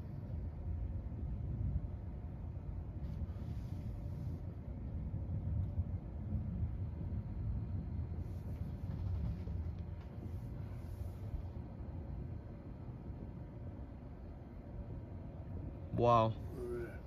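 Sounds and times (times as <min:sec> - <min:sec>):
distant rolling thunder: 0:04.7 - 0:17.0.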